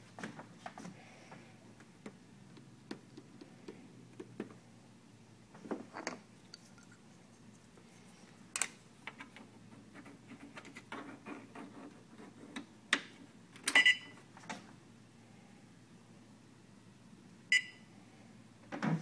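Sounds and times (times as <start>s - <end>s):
console beep: 17.5s - 17.8s.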